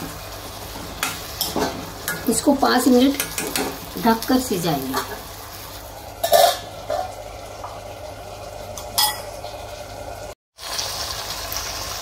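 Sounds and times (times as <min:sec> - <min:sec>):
frying sizzle: 0:00.0 - 0:12.0
metal lid clattering: 0:06.2 - 0:07.2.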